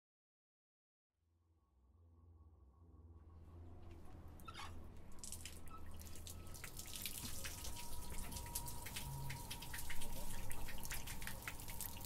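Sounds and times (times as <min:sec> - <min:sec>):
low steady hum: 0:01.9 - 0:12.0
water dripping from tap: 0:05.2 - 0:12.0.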